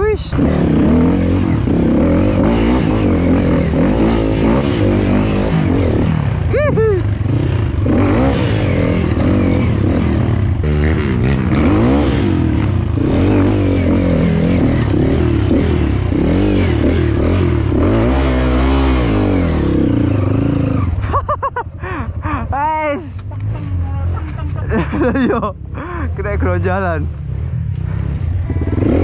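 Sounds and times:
dirt bike engine revving: 0.0s - 22.4s, 27.2s - 29.0s.

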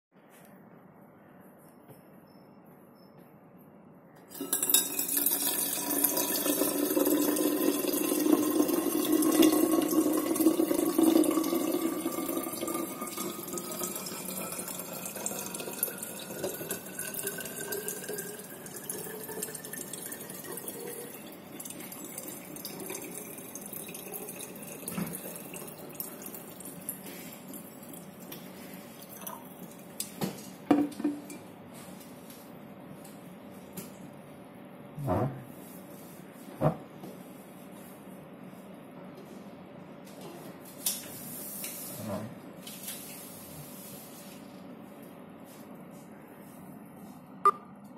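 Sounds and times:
water pouring into a bottle: 4.4s - 28.2s.

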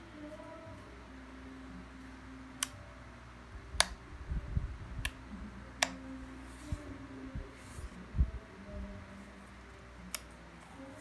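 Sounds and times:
rocker power switch clicking: 3.8s - 4.0s.

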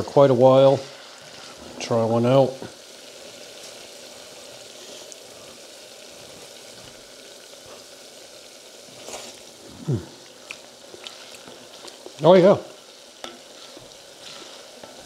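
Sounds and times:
potatoes sizzling in oil: 0.0s - 15.0s
person humming: 9.7s - 10.2s.

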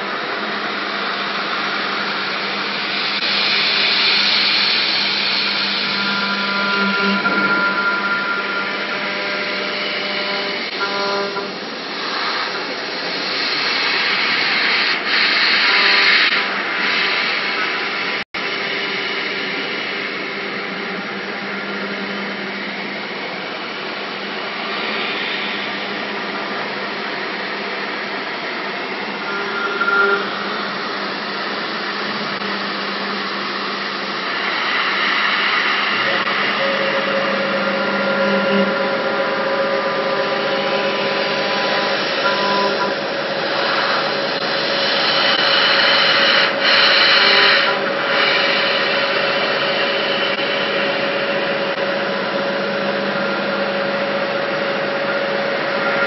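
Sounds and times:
machine spindle whine: 0.0s - 56.0s
metal cutting hiss: 33.0s - 51.6s.

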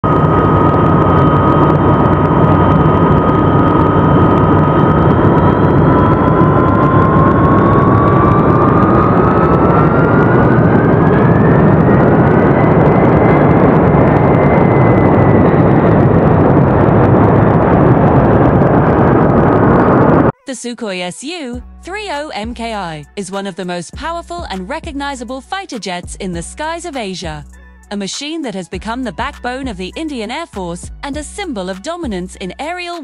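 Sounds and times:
jet engines with turbine whine: 0.0s - 20.4s.

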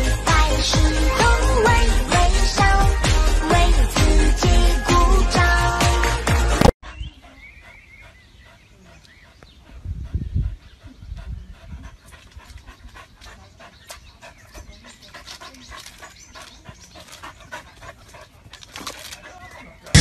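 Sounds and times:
dog panting: 6.8s - 20.0s.

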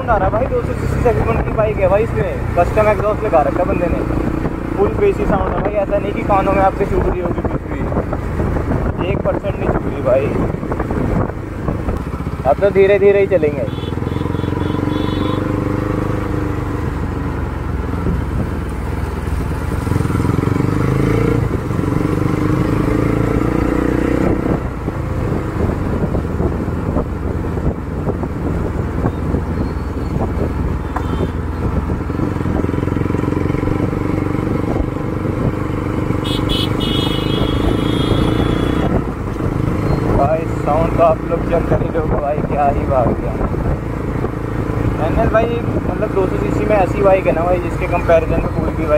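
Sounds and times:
motorcycle engine running: 10.4s - 24.1s, 24.8s - 40.5s.

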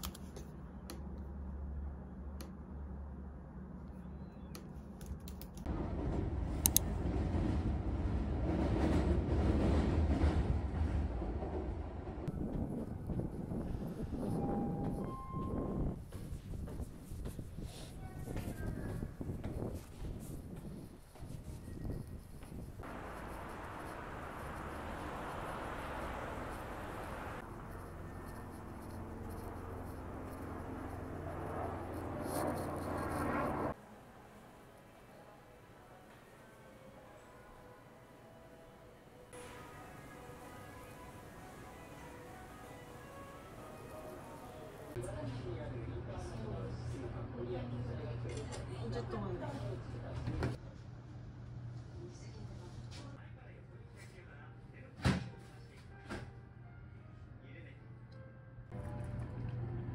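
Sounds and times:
train ride rumble: 5.3s - 33.4s
low hum: 20.3s - 36.0s
traffic rushing: 22.6s - 33.8s.

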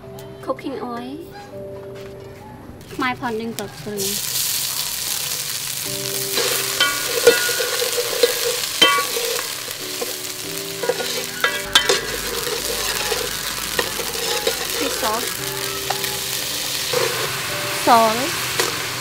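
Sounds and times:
paste sizzling in hot oil: 4.0s - 19.0s
metal ladle clinking and scraping: 6.3s - 17.6s, 18.4s - 18.9s.

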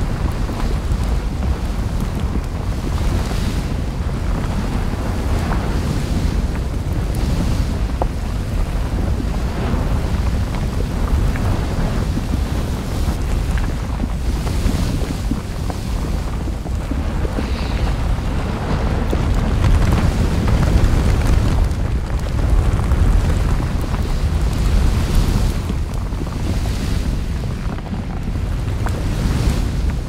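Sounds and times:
faint crackles: 0.0s - 30.0s
low rumble: 0.0s - 30.0s
wind-like rushing: 0.0s - 30.0s.

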